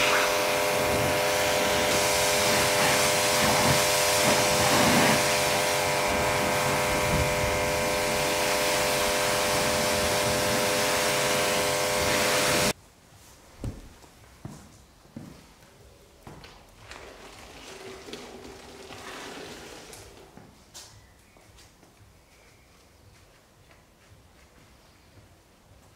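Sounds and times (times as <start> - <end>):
pressure washer motor hum: 0.0 - 12.8, 16.8 - 20.6
water jet hissing: 0.0 - 12.8, 17.0 - 20.4.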